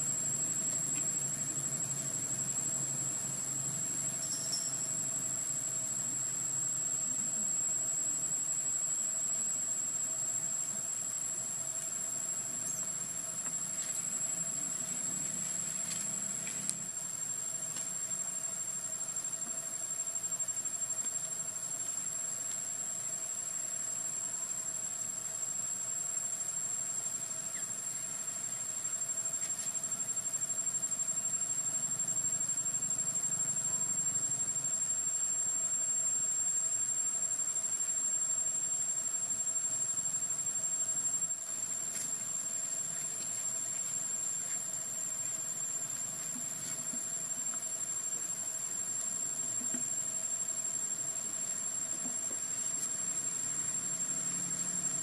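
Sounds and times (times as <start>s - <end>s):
low steady tone: 0.0s - 11.0s
insects whining: 0.0s - 55.0s.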